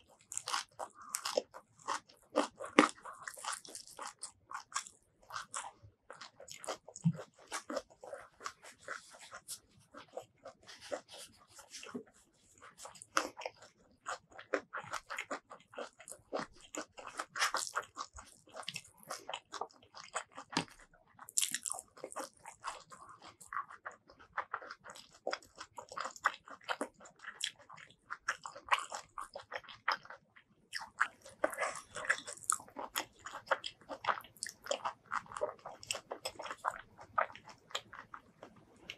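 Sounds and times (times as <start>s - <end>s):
person chewing food: 0.0s - 38.9s
wet crunchy mouth clicks: 12.8s - 38.9s.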